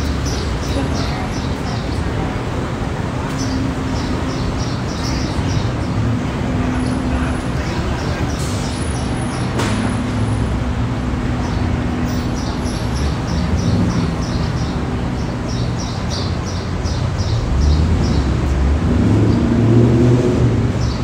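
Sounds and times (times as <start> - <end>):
street traffic rumble: 0.0 - 21.0
vehicle passing: 17.3 - 21.0.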